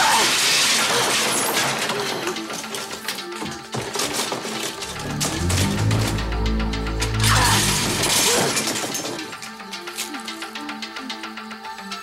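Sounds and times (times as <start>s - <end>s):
cosmetic items clinking in drawer: 0.0s - 6.2s, 7.3s - 10.2s
background music: 0.0s - 12.0s.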